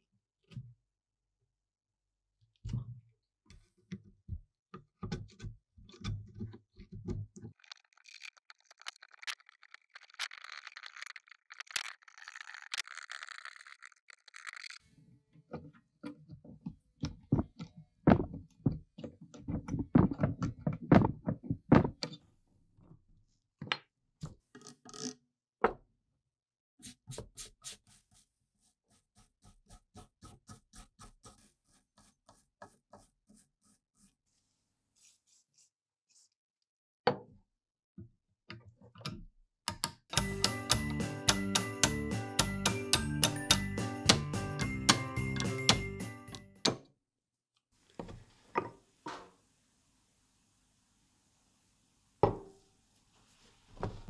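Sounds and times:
scraper scratching metal parts: 0:07.6 - 0:14.8
wire brush scrubbing spring: 0:07.6 - 0:14.8.

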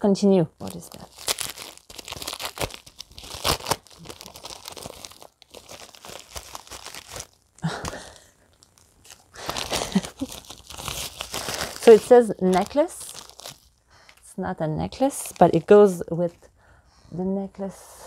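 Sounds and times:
packaging crinkling and tearing: 0:00.6 - 0:14.2, 0:14.9 - 0:15.7.

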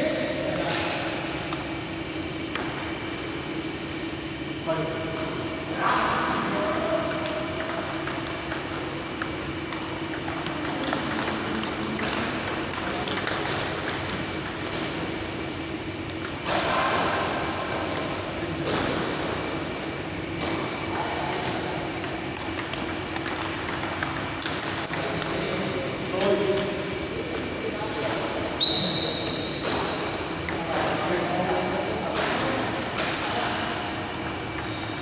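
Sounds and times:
table tennis ball clicking: 0:07.1 - 0:14.9, 0:21.4 - 0:25.4
short high squeaks: 0:28.6 - 0:29.6.

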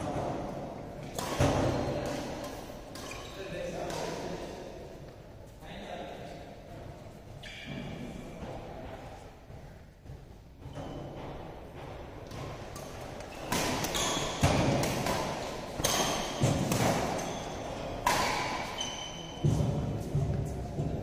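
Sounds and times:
rackets striking shuttlecock: 0:01.0 - 0:04.3, 0:12.2 - 0:20.4.

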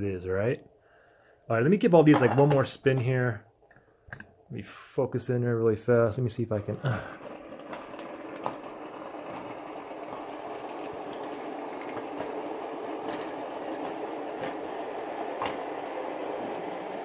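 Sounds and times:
fidget spinners whirring: 0:07.0 - 0:17.0.

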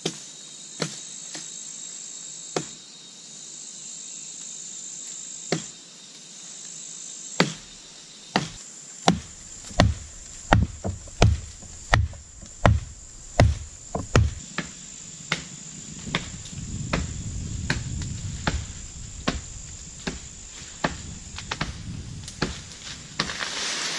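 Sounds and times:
insects buzzing: 0:00.0 - 0:23.9
axe chopping wood: 0:07.4 - 0:07.7, 0:08.3 - 0:15.5, 0:18.4 - 0:22.6.

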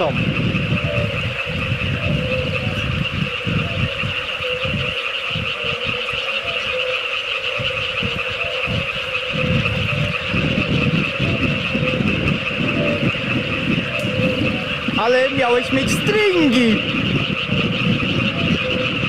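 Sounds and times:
low rumble: 0:00.0 - 0:06.2, 0:07.6 - 0:16.1
frogs trilling: 0:00.0 - 0:19.0
repeated lower frog notes: 0:00.0 - 0:19.0.

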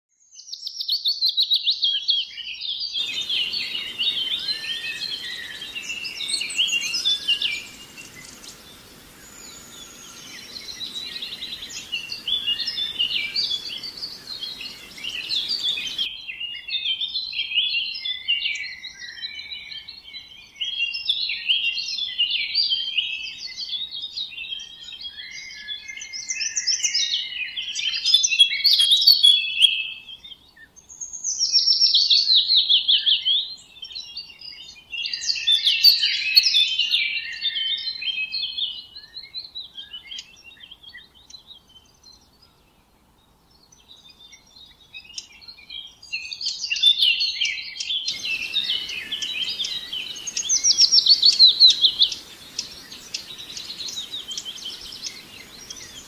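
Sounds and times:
birds chirping and singing: 0:02.8 - 0:16.1, 0:23.8 - 0:42.6, 0:43.6 - 0:56.0
faint steady hiss: 0:03.0 - 0:16.2, 0:17.0 - 0:56.0.

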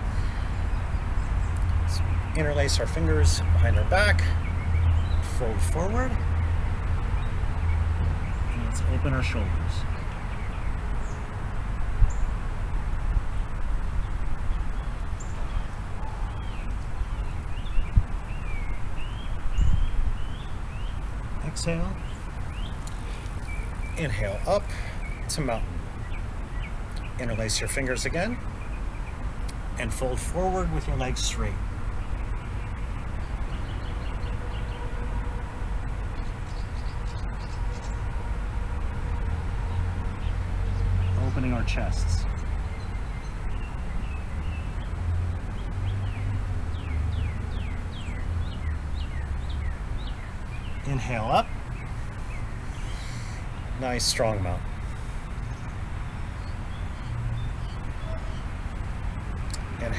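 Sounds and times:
faint steady hum: 0:00.0 - 0:57.0
low outdoor rumble: 0:00.0 - 0:59.9
wind rumble on microphone: 0:09.6 - 0:21.4.

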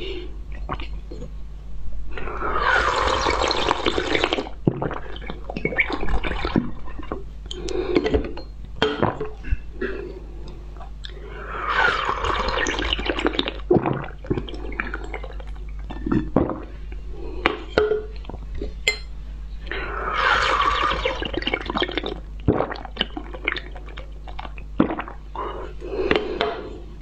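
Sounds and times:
wet slurping: 0:02.2 - 0:07.8, 0:11.0 - 0:16.7, 0:19.7 - 0:25.2.

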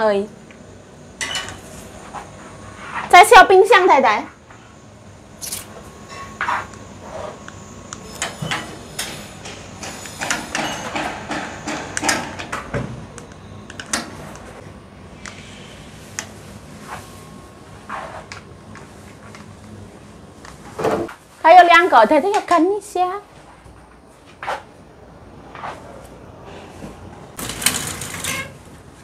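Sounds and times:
drawers opening and closing: 0:27.4 - 0:28.6.

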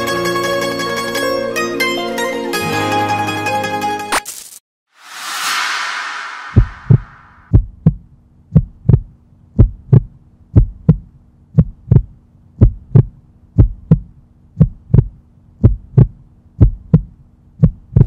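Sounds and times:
heartbeat thumps: 0:06.5 - 0:18.0.

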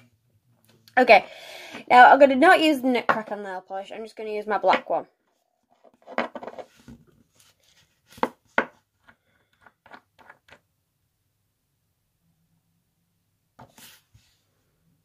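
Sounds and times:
glass bottle knocking on wooden table: 0:06.1 - 0:06.6.

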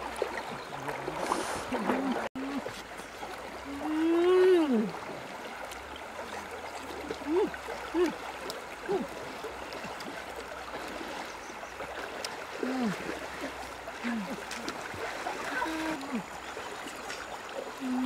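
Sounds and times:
river water flowing: 0:00.0 - 0:18.0
person's wordless vocal sounds: 0:03.7 - 0:05.0, 0:12.6 - 0:13.1, 0:14.0 - 0:14.6.

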